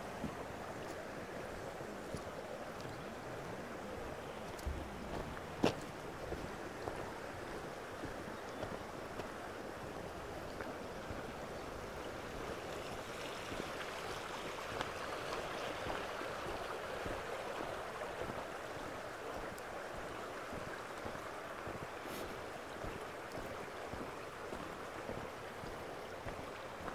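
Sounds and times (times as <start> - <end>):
stream rushing over stones: 0.0 - 26.9
footsteps on gravel: 4.5 - 9.3.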